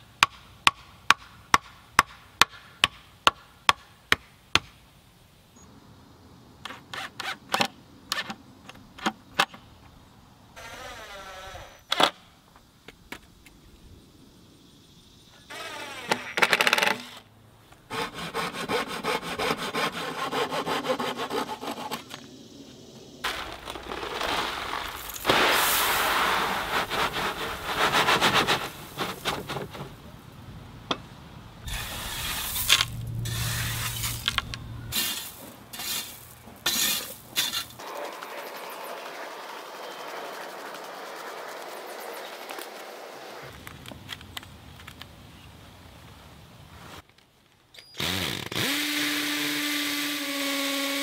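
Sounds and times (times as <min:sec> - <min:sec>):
gravel shoveled and raked: 0:23.2 - 0:30.3, 0:31.6 - 0:43.6.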